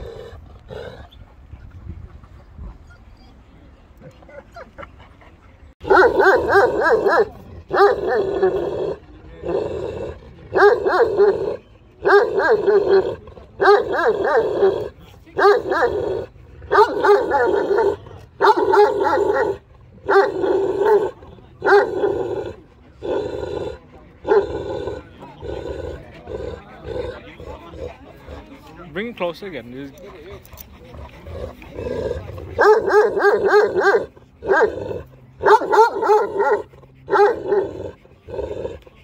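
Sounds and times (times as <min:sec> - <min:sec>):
large dog barking deeply: 0:05.8 - 0:28.5, 0:30.8 - 0:38.8.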